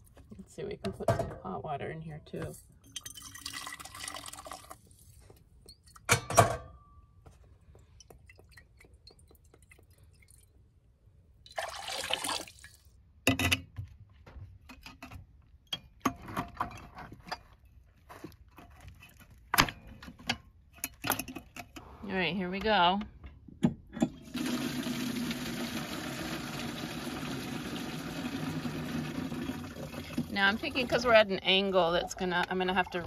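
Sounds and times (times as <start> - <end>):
water sloshing in glass carafe: 2.8 - 6.1, 29.6 - 33.0
water pouring into sink: 2.9 - 5.0, 11.5 - 12.9, 24.2 - 31.1.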